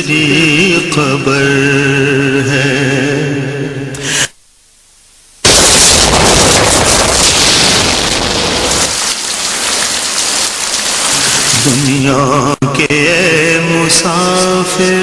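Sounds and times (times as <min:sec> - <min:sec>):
heavy rain rushing: 0:05.4 - 0:12.3.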